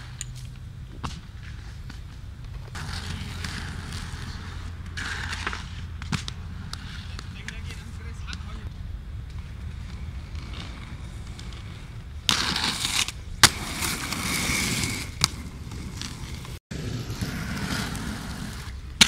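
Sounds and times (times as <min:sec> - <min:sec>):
sharp skate clack: 0:00.0 - 0:16.6
skate wheels rolling on concrete: 0:00.0 - 0:19.0.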